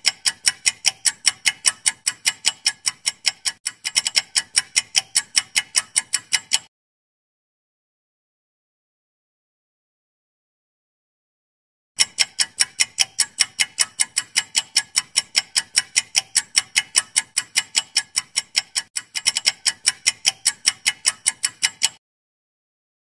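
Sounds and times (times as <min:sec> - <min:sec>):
countdown timer ticking: 0:00.0 - 0:06.7, 0:12.0 - 0:22.0.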